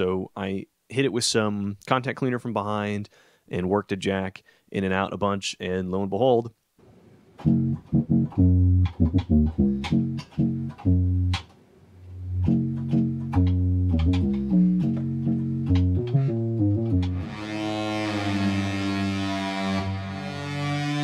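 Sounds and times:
synthesizer bass notes: 7.4s - 11.4s, 12.2s - 19.2s.

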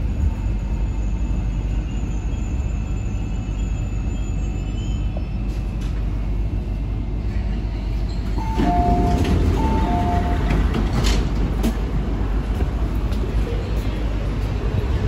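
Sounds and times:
train low hum: 0.0s - 15.0s
train doors sliding open: 5.0s - 6.5s, 7.2s - 15.0s.

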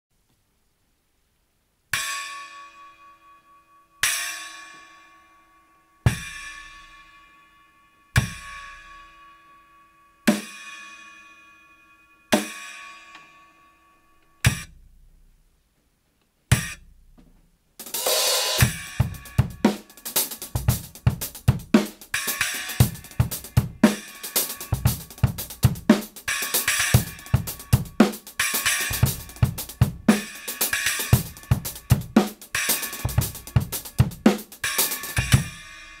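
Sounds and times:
drum kit groove: 6.1s - 6.8s, 8.2s - 8.9s, 12.4s - 12.6s, 14.4s - 15.0s, 16.5s - 36.0s.

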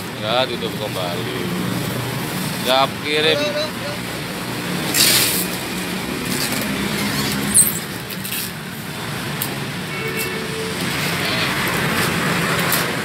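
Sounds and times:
vehicle engine hum: 0.0s - 13.0s
sharp squeak: 7.0s - 8.0s.

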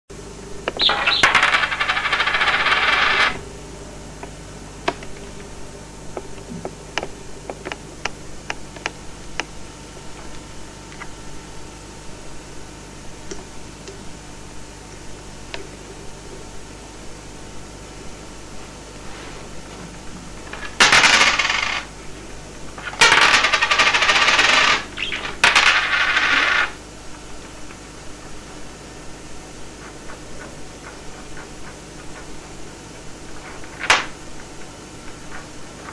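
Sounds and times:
budgerigar chatter: 0.7s - 3.3s, 24.8s - 25.4s
coins rattling on tabletop: 0.8s - 3.4s, 20.5s - 21.9s, 22.8s - 26.8s.

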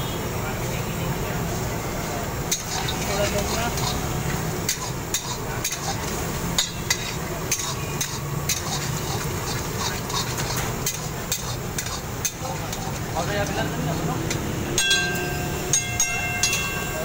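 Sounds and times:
curry sizzling and bubbling: 0.5s - 17.0s
spatula scraping a wok: 2.4s - 15.2s.

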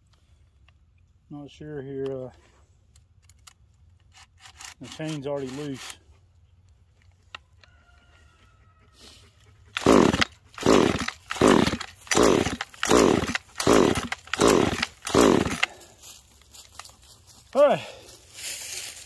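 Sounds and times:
chainsaw starter rope pulls: 3.3s - 6.0s, 9.7s - 17.0s.

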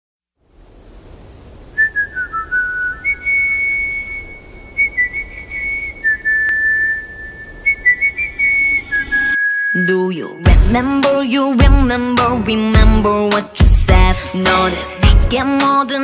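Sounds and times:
whistled melody: 1.8s - 10.5s.

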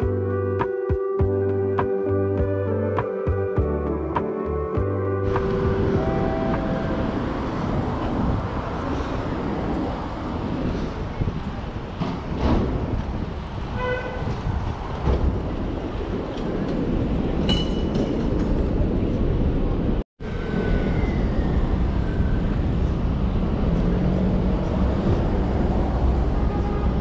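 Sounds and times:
city traffic rumble: 0.0s - 27.0s.

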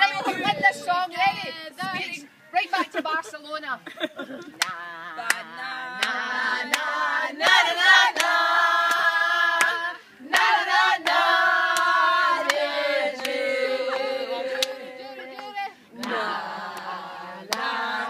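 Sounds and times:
hand claps: 4.5s - 12.6s, 13.2s - 16.9s
women singing together: 4.5s - 18.0s.

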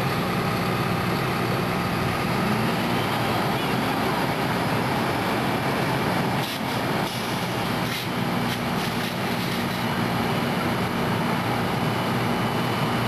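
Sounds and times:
fire engine running: 0.0s - 13.0s
broad hiss of pumping water: 6.2s - 10.3s.

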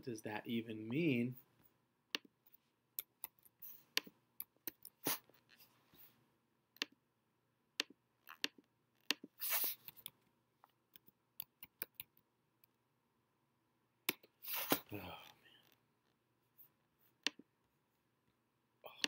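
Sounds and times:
brief hiss: 14.4s - 14.9s.

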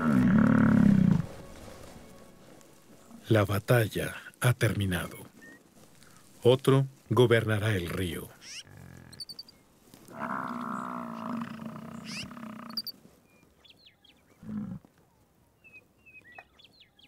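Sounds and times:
bison bellowing: 0.0s - 1.4s.

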